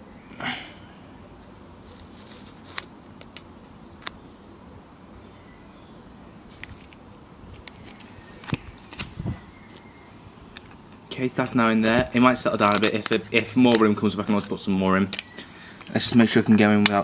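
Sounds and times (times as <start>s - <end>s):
faint background hiss: 0.0s - 17.0s
plastic pouch clicks: 11.4s - 17.0s.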